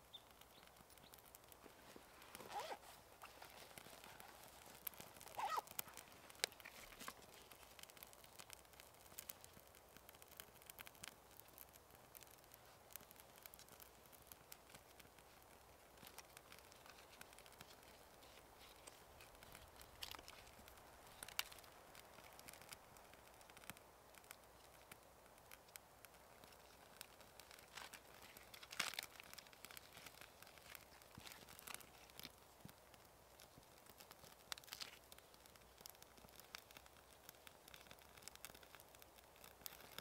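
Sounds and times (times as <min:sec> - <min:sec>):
sharp snaps of fire: 0:00.0 - 0:40.0
small fire crackling: 0:00.0 - 0:40.0
hands handling bark and kindling: 0:00.2 - 0:09.4, 0:16.0 - 0:23.0, 0:26.4 - 0:32.8.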